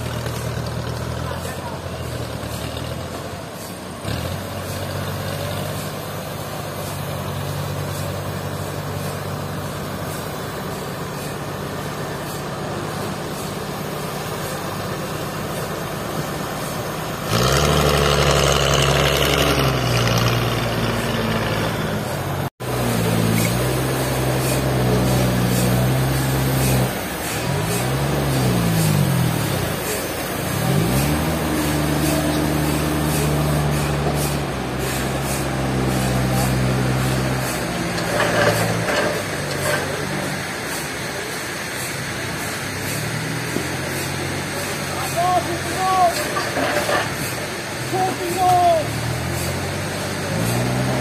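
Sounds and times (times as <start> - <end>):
forklift engine running: 0.0 - 51.0.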